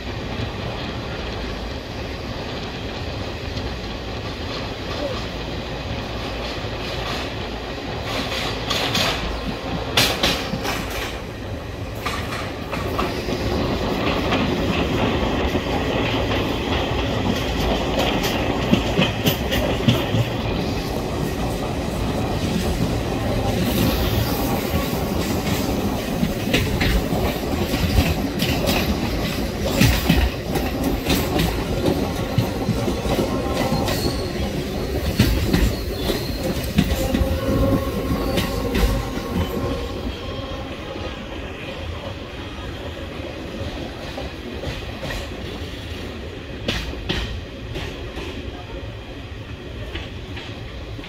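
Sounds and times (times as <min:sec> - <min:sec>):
train wheels rumbling: 0:00.0 - 0:51.0
clacks over rail joints: 0:02.4 - 0:40.5, 0:41.9 - 0:45.8, 0:46.6 - 0:48.5
wheel squeals: 0:32.6 - 0:40.6.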